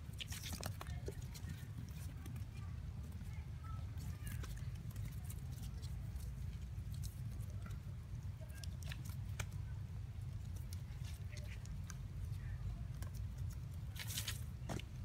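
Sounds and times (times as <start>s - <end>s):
low steady rumble: 0.0s - 15.0s
small sharp clicks and scratches: 0.0s - 15.0s.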